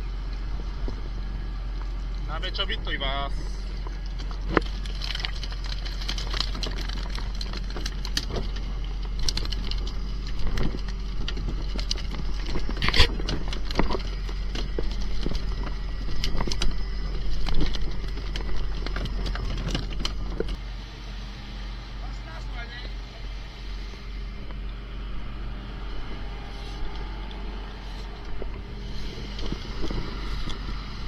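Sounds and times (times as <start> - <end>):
boat engine hum: 0.0 - 31.0.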